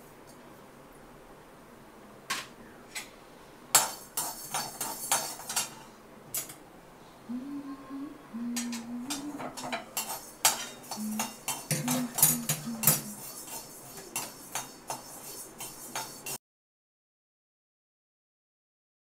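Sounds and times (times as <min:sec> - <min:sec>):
metal spatula scraping a pan: 0:03.7 - 0:06.0, 0:09.1 - 0:16.4
low humming tone: 0:07.0 - 0:09.6.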